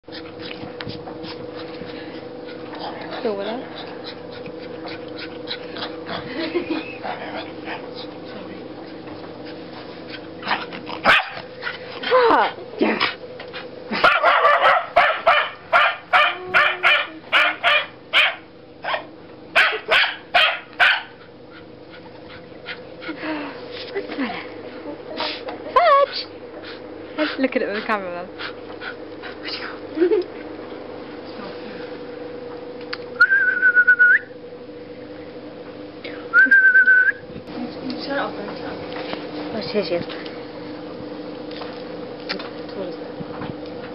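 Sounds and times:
dog barking sharply: 11.1 - 11.4, 14.0 - 21.2
person whistling: 33.2 - 34.3, 36.3 - 37.2.

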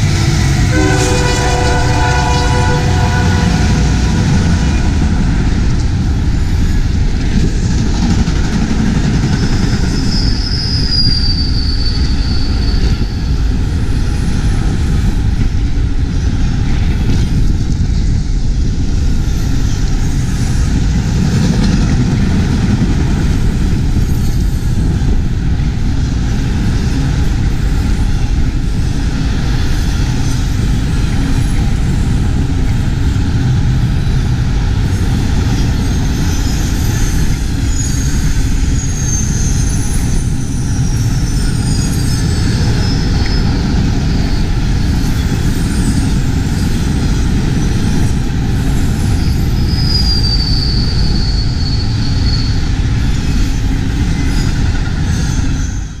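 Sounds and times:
steel wheels rolling on rail: 0.0 - 56.0
high thin wheel squeals: 9.9 - 13.3, 35.8 - 43.6, 49.0 - 53.6.

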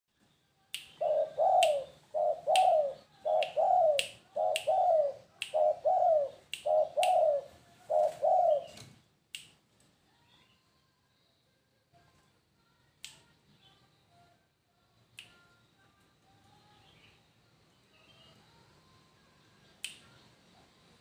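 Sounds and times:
finger snaps: 0.7 - 1.9, 2.5 - 5.7, 6.4 - 7.4, 9.3 - 9.6, 13.0 - 13.3, 15.1 - 15.6, 19.8 - 20.2
dove cooing: 1.0 - 8.8.

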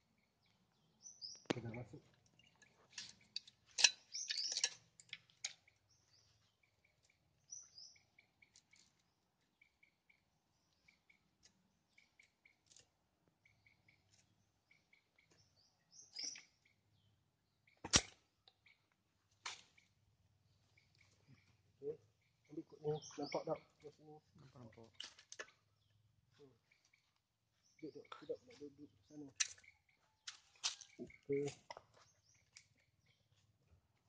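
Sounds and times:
small birds chirping: 0.0 - 34.0
sharp click: 17.8 - 18.2.

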